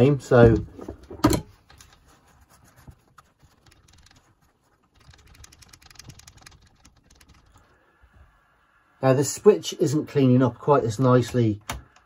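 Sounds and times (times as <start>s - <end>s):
paper towel wiping: 1.8s - 8.6s.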